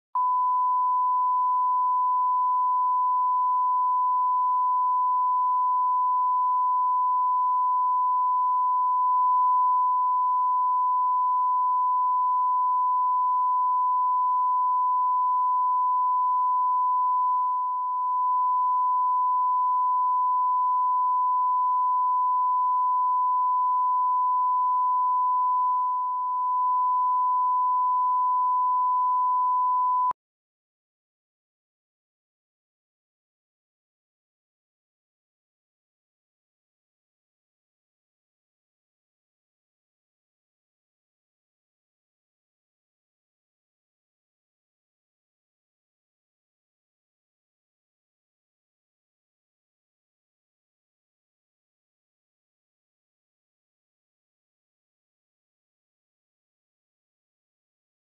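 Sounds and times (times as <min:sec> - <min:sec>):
sine test tone: 0:00.2 - 0:30.2.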